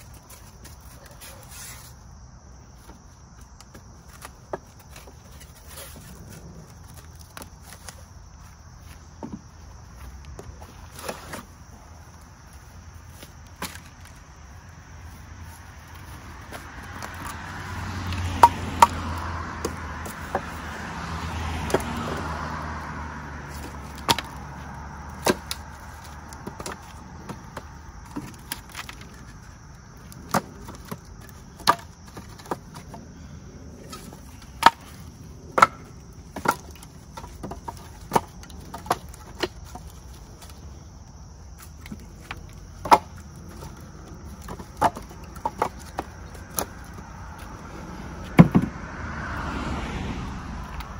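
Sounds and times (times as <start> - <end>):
firewood pieces clacking together: 2.9 - 8.5, 12.6 - 14.3, 16.0 - 22.6, 23.4 - 48.7.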